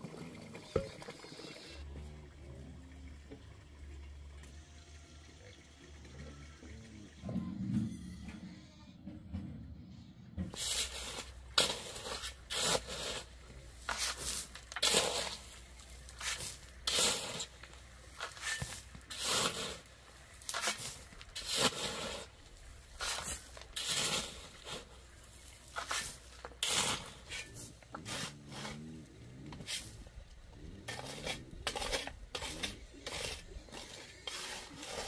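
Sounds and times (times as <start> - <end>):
shovel digging soil and gravel: 10.5 - 35.0.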